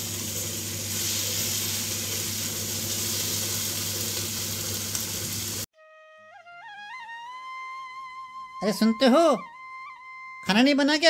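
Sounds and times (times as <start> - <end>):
sizzling in a pan: 0.0 - 5.7.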